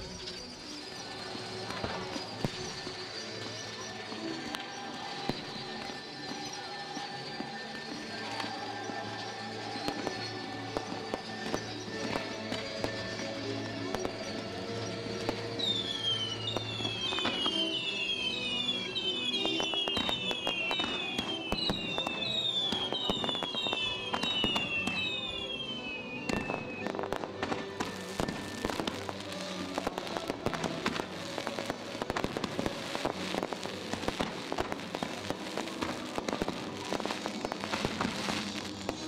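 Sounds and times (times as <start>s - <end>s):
falling firework whistles: 0.0s - 39.0s
firework crackling: 0.0s - 39.0s
firework bangs: 13.9s - 39.0s.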